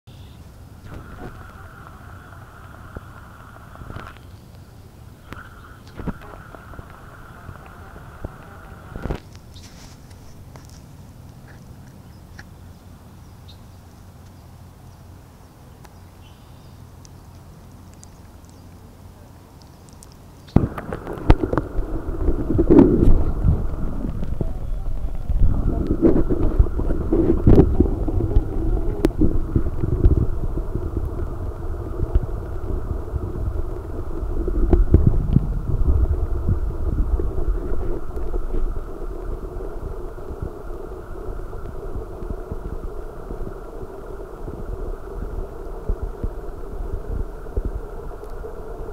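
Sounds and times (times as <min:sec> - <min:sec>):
steady low hum: 0:00.1 - 0:48.9
muffled underwater rumble: 0:00.2 - 0:13.3, 0:17.7 - 0:48.9
faint high ticks: 0:15.8 - 0:18.8.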